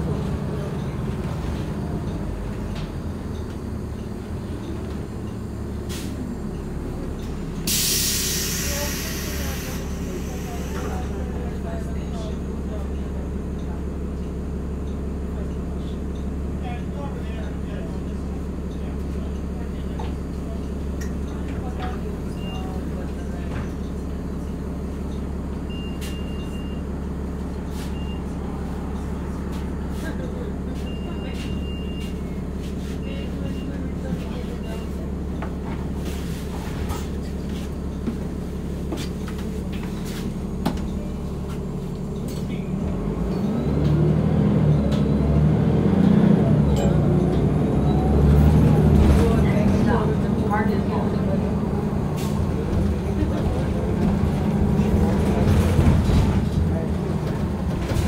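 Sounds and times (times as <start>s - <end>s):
bus engine and road rumble: 0.0s - 58.0s
loud hiss: 7.7s - 10.8s.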